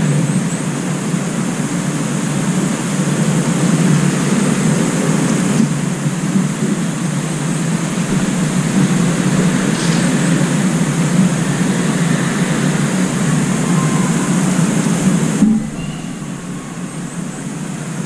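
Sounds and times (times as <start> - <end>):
low background rumble: 4.8 - 18.0.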